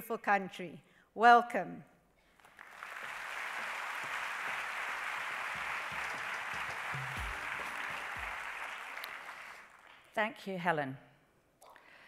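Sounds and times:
audience applauding: 2.4 - 10.2.

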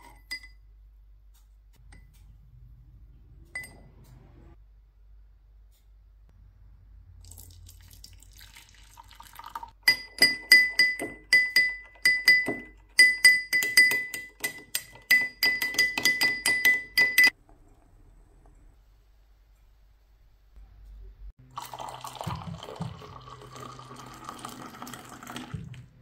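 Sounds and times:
spoon clinking in a glass: 0.0 - 0.6, 9.8 - 17.4.

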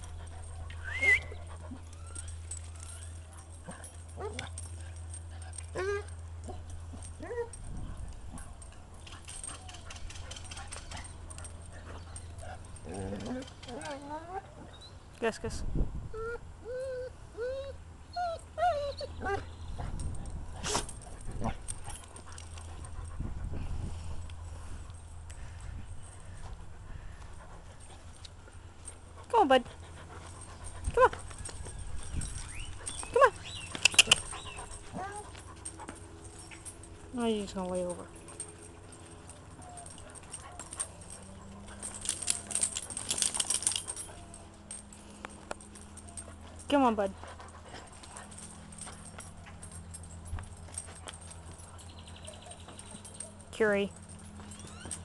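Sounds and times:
dog whining: 0.2 - 4.6, 5.7 - 6.2, 16.1 - 19.6, 30.4 - 35.8, 38.2 - 45.0, 54.1 - 55.0
light clicks and rattles: 1.4 - 14.4, 19.8 - 55.0.

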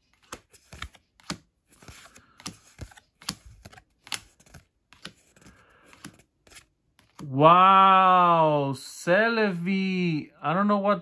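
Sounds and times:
cards clicking: 0.1 - 7.3.

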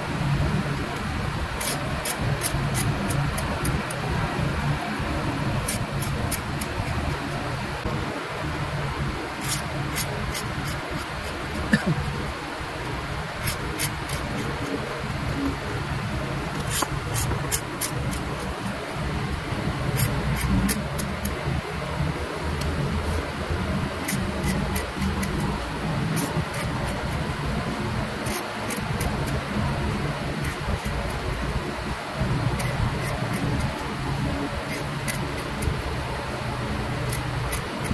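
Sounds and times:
hand tool scratching lacquer: 0.9 - 4.1, 5.5 - 7.4, 9.4 - 12.1, 12.8 - 15.6, 16.5 - 21.9, 22.6 - 27.4, 28.1 - 31.6, 32.5 - 35.9, 37.0 - 37.9.

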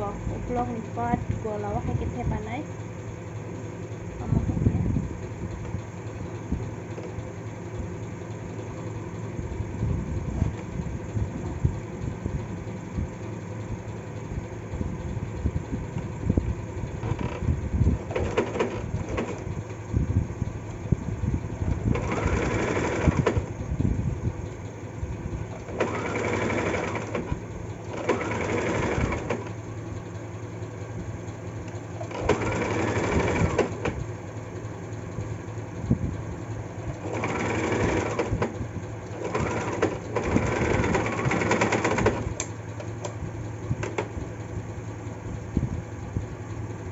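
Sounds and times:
steady low hum: 0.0 - 46.9
sewing machine stitching: 17.0 - 19.7, 21.7 - 23.5, 25.4 - 29.6, 31.9 - 34.0, 37.0 - 42.5.

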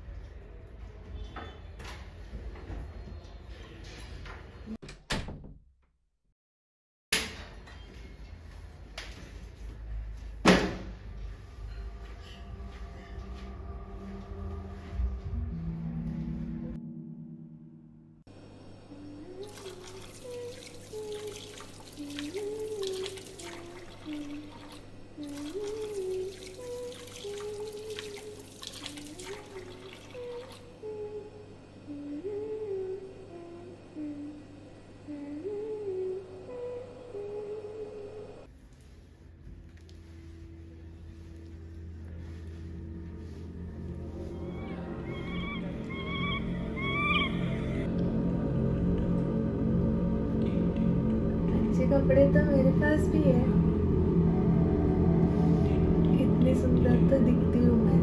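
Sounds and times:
door banging shut: 4.8 - 5.7
door slamming shut: 4.8 - 5.7
woman humming: 18.8 - 38.4, 44.2 - 47.9
tap water splashing into sink: 19.5 - 30.6.

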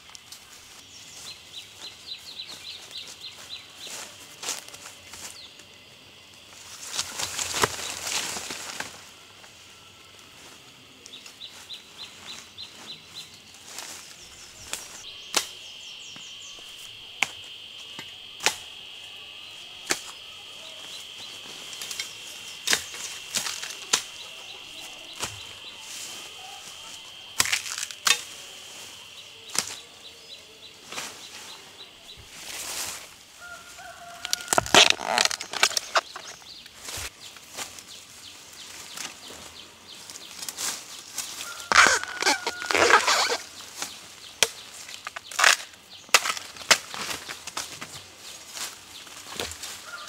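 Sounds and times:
leaves rustling: 0.0 - 50.0
stems snapping: 6.8 - 9.0, 14.6 - 16.3, 18.0 - 18.8, 19.8 - 20.2, 21.7 - 24.4, 27.3 - 28.4, 29.5 - 29.8, 33.9 - 37.9, 40.1 - 50.0.

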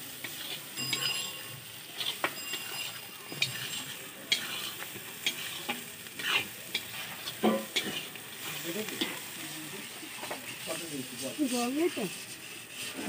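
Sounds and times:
spices sizzling in hot oil: 0.0 - 13.0
metal spatula scraping a pan: 0.1 - 13.0.

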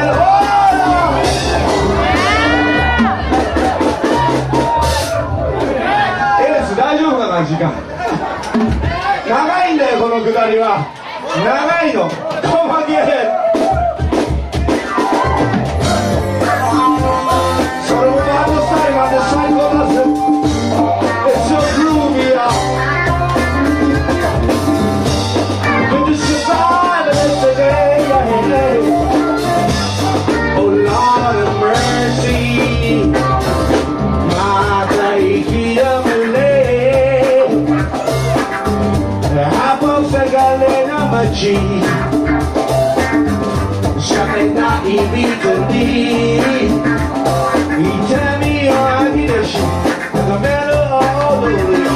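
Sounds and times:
electric guitar: 0.0 - 6.4, 13.8 - 51.9
drum kit: 0.0 - 9.7, 12.0 - 51.9
live band playing loudly: 0.0 - 51.9
person singing into a microphone: 15.8 - 24.5, 25.6 - 38.1, 39.2 - 42.3, 43.9 - 51.9.

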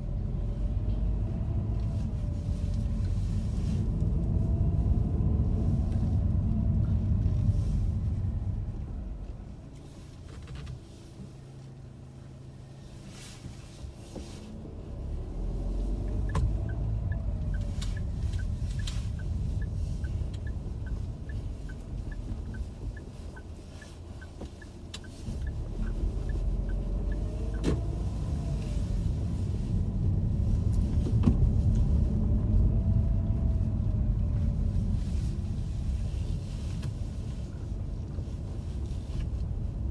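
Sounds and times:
car engine and road rumble: 0.0 - 39.9
turn signal ticking: 15.0 - 34.7.

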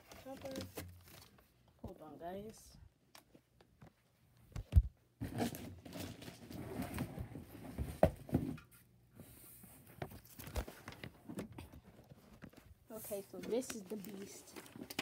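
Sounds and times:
cardboard and plastic rustling: 0.0 - 2.6, 4.8 - 8.7, 9.8 - 15.0.

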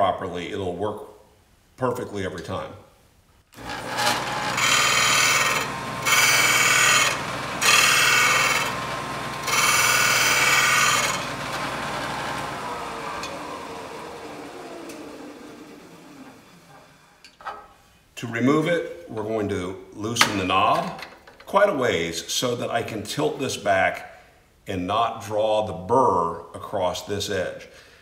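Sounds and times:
chisel grinding on sanding disc: 3.6 - 13.7
motor spinning sanding disc: 3.6 - 17.2.

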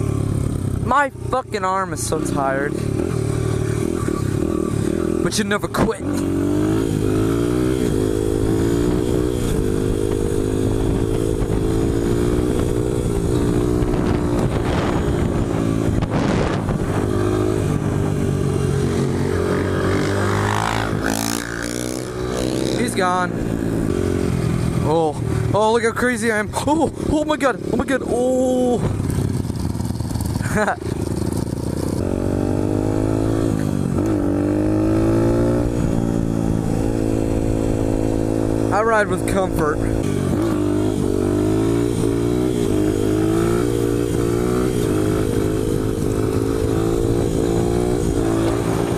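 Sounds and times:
motorcycle engine at high revs: 0.0 - 48.9
wind on microphone: 7.2 - 24.8, 41.9 - 48.9.

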